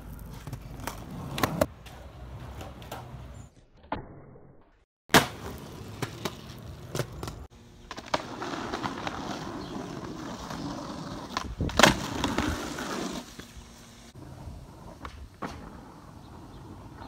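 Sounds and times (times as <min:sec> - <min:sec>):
skateboard wheels rolling on pavement: 0:00.0 - 0:03.6, 0:05.1 - 0:17.0
skateboard clacking on ground: 0:00.1 - 0:03.4, 0:05.2 - 0:10.0.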